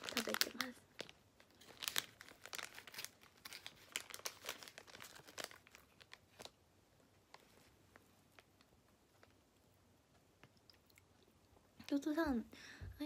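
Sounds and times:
plastic wrapper crinkling: 0:00.0 - 0:09.4.

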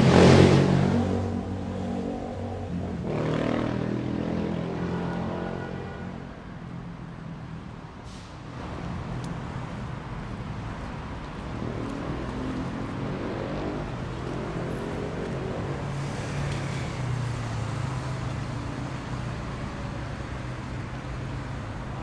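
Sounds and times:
vehicle engine accelerating: 0:00.0 - 0:04.8, 0:08.6 - 0:20.5
rumble of cars driving past: 0:00.0 - 0:22.0.

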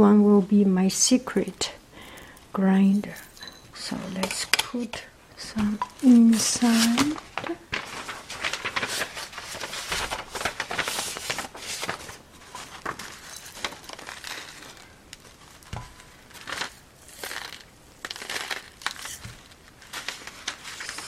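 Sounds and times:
paper crinkling: 0:03.0 - 0:21.0
peppercorns rattling: 0:12.4 - 0:20.3.

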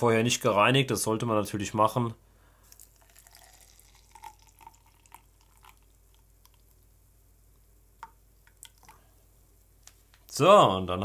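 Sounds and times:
juice dripping and splashing: 0:02.6 - 0:07.0, 0:08.0 - 0:09.1.

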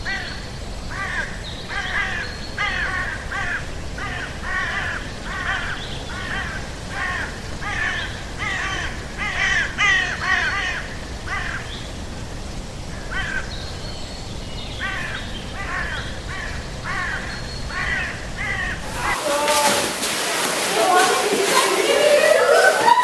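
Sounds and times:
crows cawing: 0:00.9 - 0:11.7, 0:14.8 - 0:19.9.

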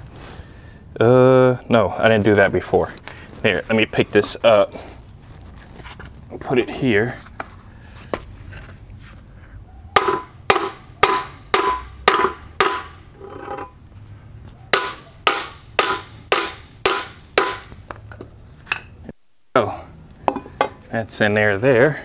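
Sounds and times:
sledgehammer striking steel: 0:10.0 - 0:13.7, 0:14.7 - 0:17.8.

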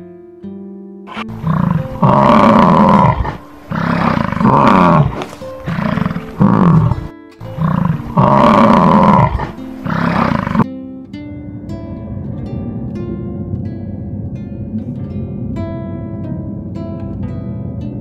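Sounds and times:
soft background music: 0:00.0 - 0:18.0
big cat roaring and growling: 0:01.1 - 0:10.6.

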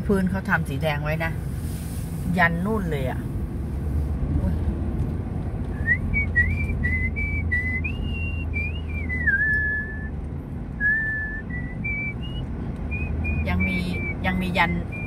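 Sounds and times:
car engine and tyres rumbling: 0:00.0 - 0:15.0
person whistling a tune: 0:05.8 - 0:10.2, 0:10.8 - 0:14.2.

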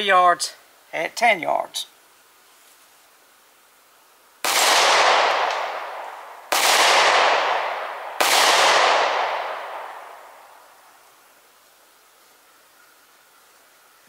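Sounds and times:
pistol shots: 0:04.4 - 0:10.5.

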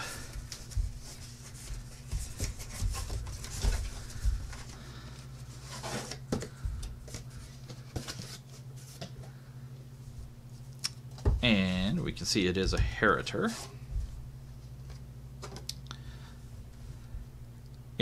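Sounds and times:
cardboard flaps rubbing and folding: 0:00.3 - 0:04.8, 0:05.4 - 0:09.2.

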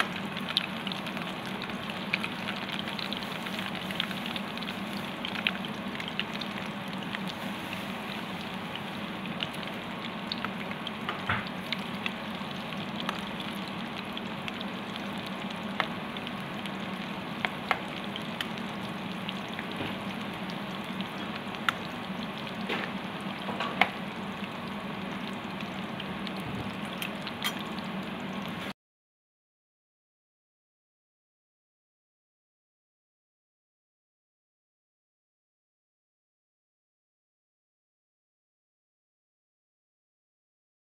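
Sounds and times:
food deep-frying in oil: 0:00.0 - 0:28.8.

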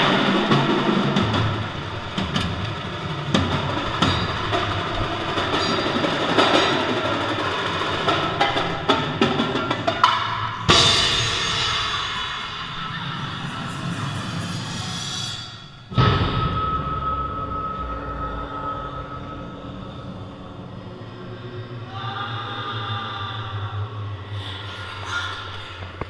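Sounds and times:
percussion ensemble playing: 0:00.0 - 0:12.8
loud sharp drum hit: 0:10.0 - 0:12.4, 0:15.9 - 0:17.6.

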